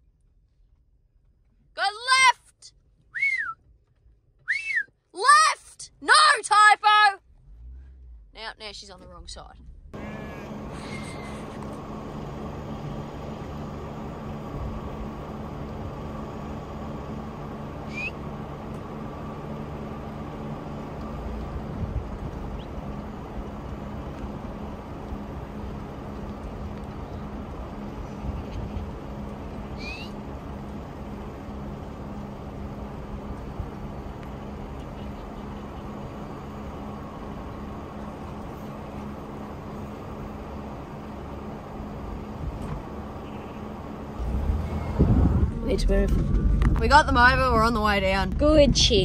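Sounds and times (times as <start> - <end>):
engine idling low hum: 0.0 - 1.8, 2.6 - 5.1, 5.8 - 49.0
short high rising chirp: 17.8 - 18.2, 29.7 - 30.2.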